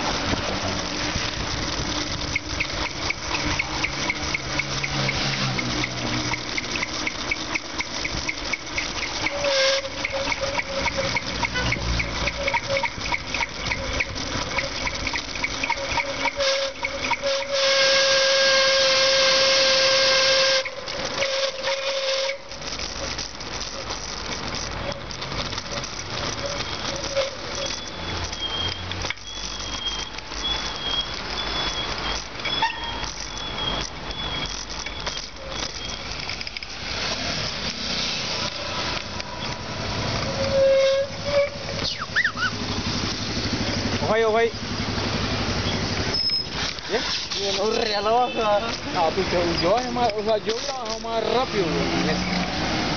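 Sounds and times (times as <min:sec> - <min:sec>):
bicycle brakes squealing: 0:00.0 - 0:52.9
traffic noise: 0:00.0 - 0:52.9
wind: 0:00.0 - 0:52.9
harsh hiss of hard braking: 0:36.0 - 0:44.0, 0:44.6 - 0:49.6.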